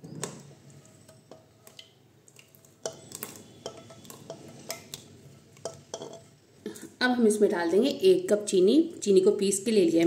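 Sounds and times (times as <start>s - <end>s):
utensil clinking against pan: 3.6s - 4.9s, 5.6s - 6.3s.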